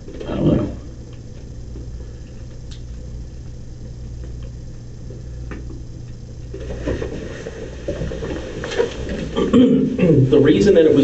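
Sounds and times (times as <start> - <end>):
steady low hum: 0.0 - 11.0
faint clicks: 1.1 - 3.0.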